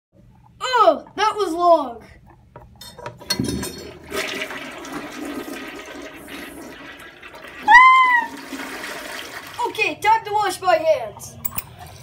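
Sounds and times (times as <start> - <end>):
water rushing through toilet bowl: 3.4 - 10.1.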